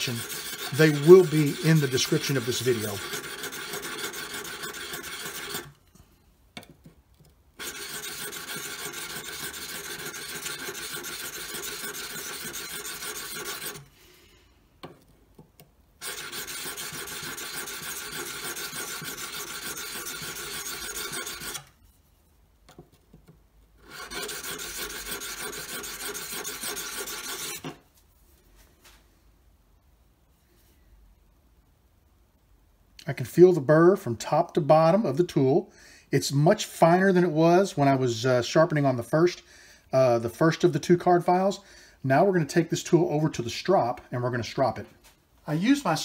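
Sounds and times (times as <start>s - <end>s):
chisel scraping on file: 0.0s - 6.0s, 7.6s - 13.9s, 16.0s - 22.0s, 23.8s - 27.8s.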